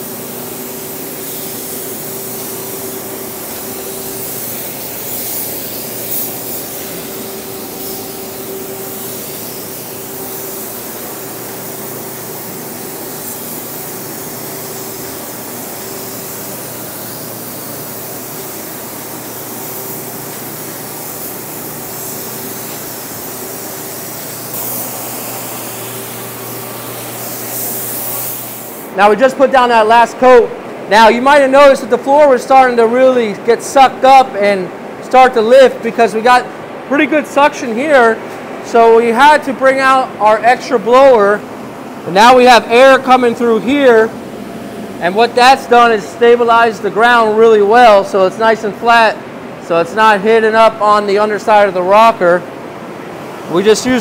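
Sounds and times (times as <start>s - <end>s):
spray gun air hissing: 0.0s - 29.0s, 53.1s - 54.0s.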